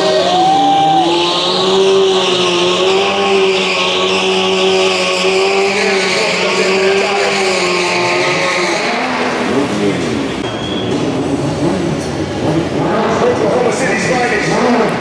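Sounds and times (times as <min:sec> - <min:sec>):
motorcycle engine at high revs: 0:00.0 - 0:15.0
tyre squeal on concrete: 0:10.4 - 0:11.2.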